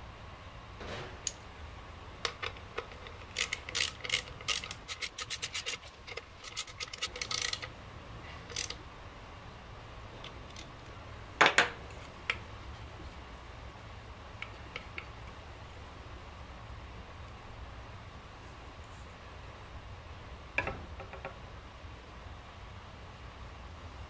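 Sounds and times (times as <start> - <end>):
metallic clicks and rattles: 2.2 - 7.7, 8.4 - 8.8.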